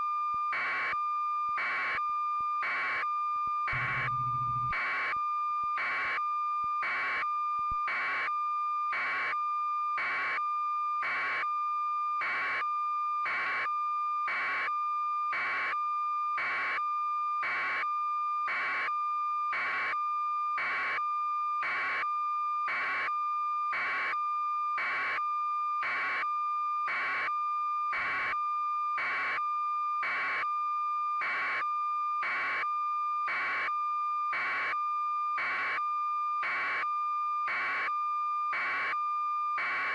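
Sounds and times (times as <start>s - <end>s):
beeps: 3.7s - 4.8s
high electronic tone: 3.8s - 4.7s.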